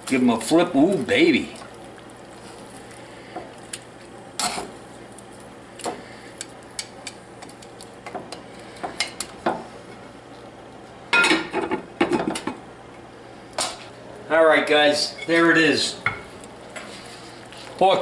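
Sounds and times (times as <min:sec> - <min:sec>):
metal tongs scraping a skillet: 0:04.4 - 0:04.7.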